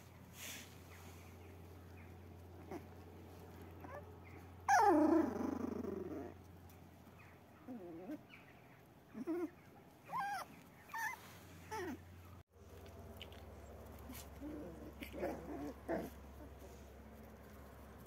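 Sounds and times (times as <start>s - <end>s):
puppy whining and grunting: 2.6s - 6.5s, 7.6s - 8.4s, 9.1s - 12.4s, 14.1s - 16.9s
puppy whimpering: 4.7s - 6.4s, 9.2s - 12.0s.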